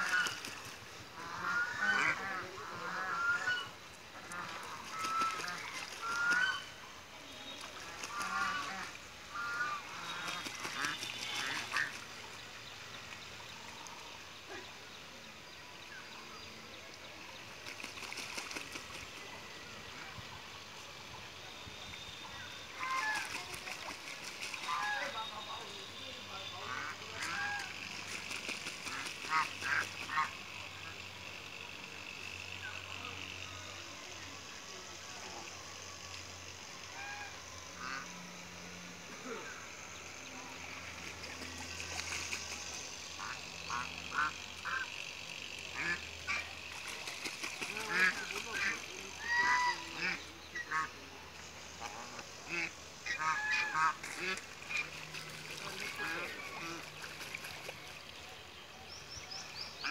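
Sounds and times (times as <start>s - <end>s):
geese honking: 1.1s - 6.8s, 7.8s - 12.0s, 24.6s - 25.4s, 26.6s - 28.0s, 36.9s - 38.1s, 43.2s - 44.9s, 45.7s - 51.0s, 51.8s - 57.2s
goose honking: 1.2s - 6.7s, 26.6s - 27.7s, 52.0s - 55.0s.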